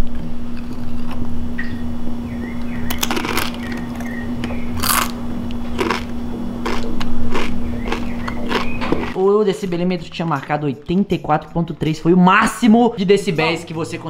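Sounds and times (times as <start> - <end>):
steady low hum: 0.0 - 14.0
tortilla chip crunching: 2.9 - 10.4.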